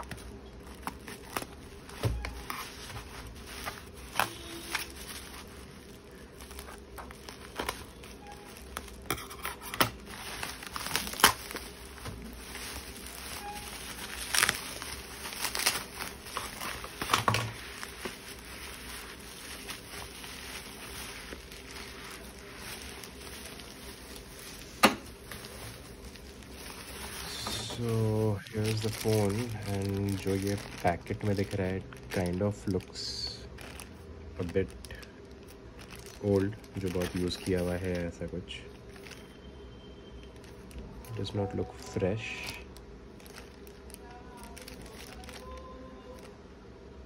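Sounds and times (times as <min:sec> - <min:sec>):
packaging tearing: 0:00.0 - 0:39.4, 0:40.3 - 0:46.3
plastic packaging crinkling: 0:00.0 - 0:46.4.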